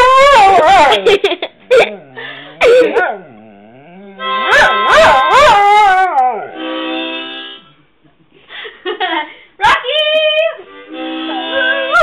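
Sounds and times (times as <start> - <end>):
dog howling: 0.0 - 1.1, 1.7 - 6.6
harmonica: 4.1 - 5.6, 6.4 - 7.9, 10.0 - 12.0.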